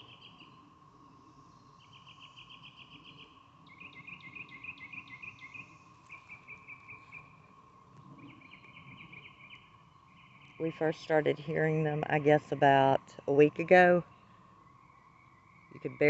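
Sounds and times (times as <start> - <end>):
faint steady drone: 0.0 - 16.0
cicadas calling: 1.8 - 7.4.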